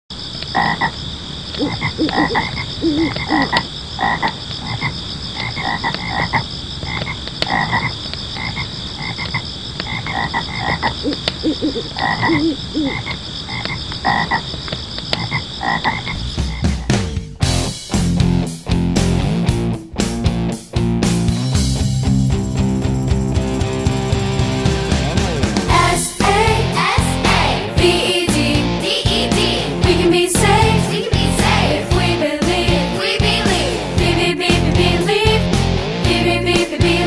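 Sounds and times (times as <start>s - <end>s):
frogs croaking: 0.1s - 16.9s
high-pitched pulsing chorus: 23.7s - 37.0s.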